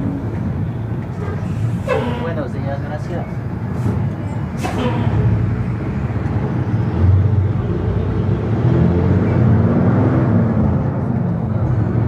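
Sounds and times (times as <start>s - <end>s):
vehicle engine accelerating: 4.7s - 12.0s.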